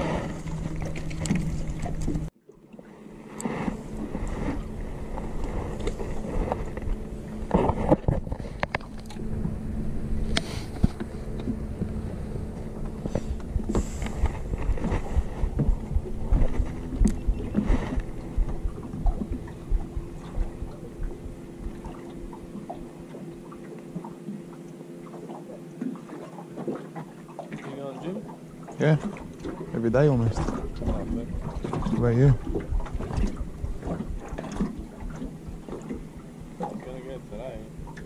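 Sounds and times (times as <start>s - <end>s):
boat engine hum: 0.0s - 38.0s
water slapping boat hull: 0.0s - 38.0s
wind buffeting microphone: 3.9s - 22.9s, 29.0s - 36.8s.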